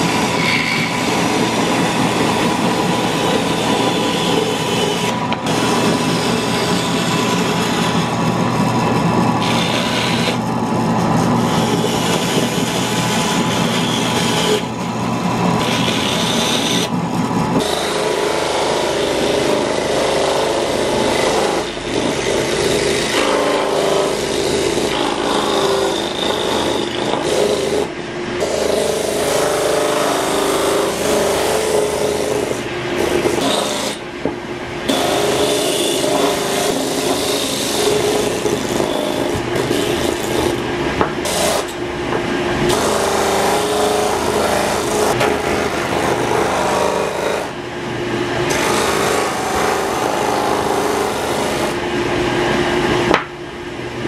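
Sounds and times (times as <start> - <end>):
disc sander grinding wood: 0.0 - 34.0, 34.9 - 41.8.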